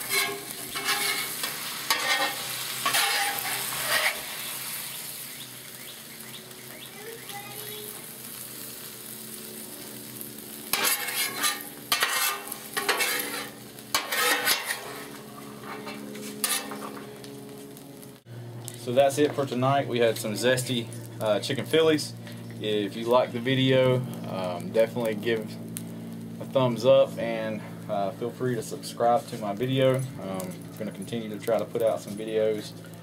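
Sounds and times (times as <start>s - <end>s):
metal spatula scraping griddle: 0.0s - 4.8s, 10.7s - 17.1s
sizzling on hot griddle: 0.0s - 33.0s.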